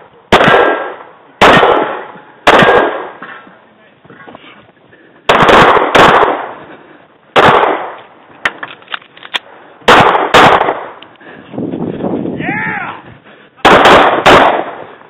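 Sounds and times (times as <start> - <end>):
pistol shots: 0.3 - 3.2, 5.3 - 6.6, 7.3 - 8.0, 9.9 - 11.0, 13.6 - 14.9.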